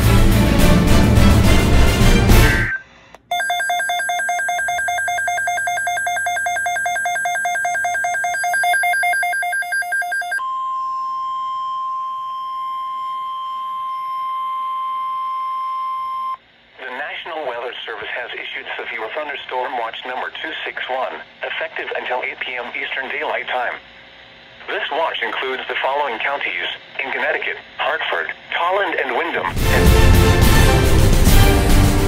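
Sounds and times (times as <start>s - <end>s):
steady high alert tone: 2.2s - 13.1s
rapid pulsing electronic alarm: 2.3s - 16.4s.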